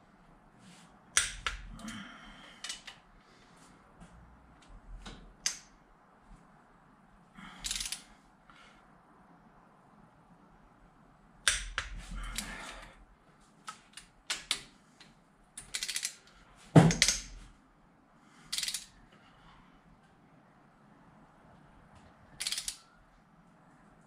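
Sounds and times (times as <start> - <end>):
wrench ratcheting: 7.6 - 8.0, 15.6 - 16.2, 18.5 - 19.0, 22.4 - 22.8
torque wrench clicking: 22.4 - 22.8.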